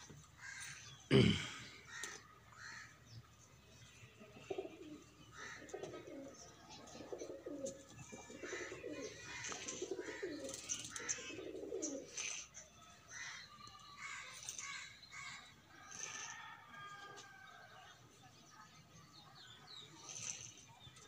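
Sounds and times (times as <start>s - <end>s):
pigeons cooing: 4.4s - 12.6s, 20.0s - 21.0s.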